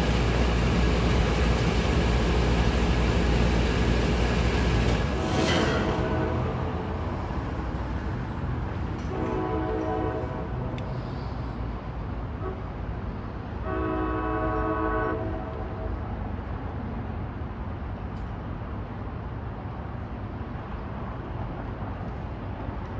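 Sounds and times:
locomotive air horn blast: 5.1 - 6.9, 9.1 - 11.2, 12.4 - 12.7, 13.6 - 16.0.

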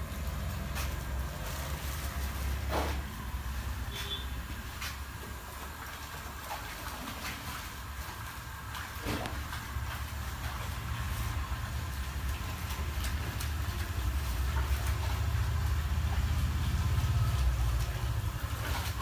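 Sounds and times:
wet cloth sloshing in water: 0.0 - 19.0.

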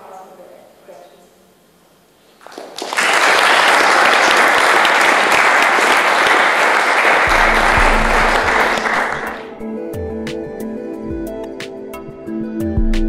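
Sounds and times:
audience applauding: 2.4 - 9.6.

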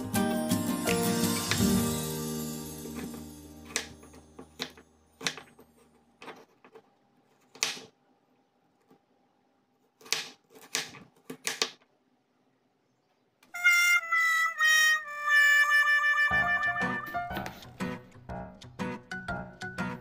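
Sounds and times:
music: 0.0 - 5.1, 13.6 - 20.0
knife chopping on wooden board: 2.8 - 5.6, 7.5 - 7.9, 10.0 - 11.8.

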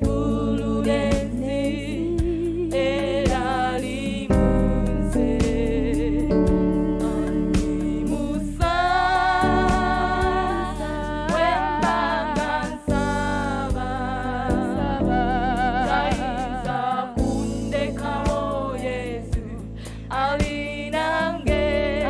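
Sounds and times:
female group singing gospel: 0.0 - 22.0
instrumental accompaniment with beat: 0.0 - 22.0.

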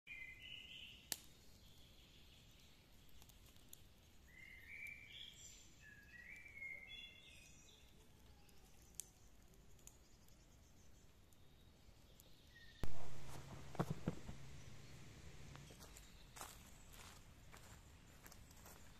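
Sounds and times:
faint steady hiss: 0.4 - 18.9
songbird whistling: 4.3 - 7.8.

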